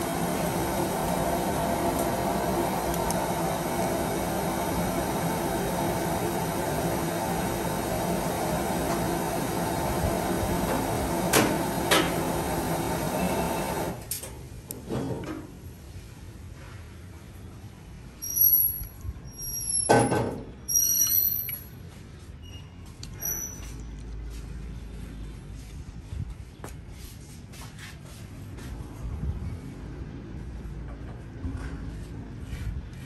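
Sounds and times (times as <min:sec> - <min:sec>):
appliance hum: 0:00.0 - 0:14.1.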